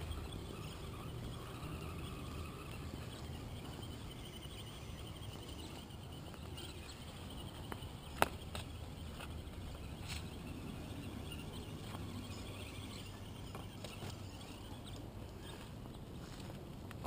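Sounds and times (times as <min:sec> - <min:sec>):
toy car motor whine: 0:00.0 - 0:16.6
low background hum: 0:00.0 - 0:17.0.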